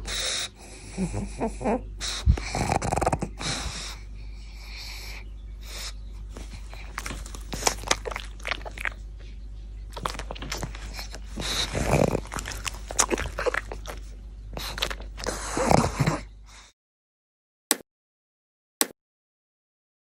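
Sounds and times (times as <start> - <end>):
dog chewing a treat: 6.3 - 9.2, 9.8 - 16.1.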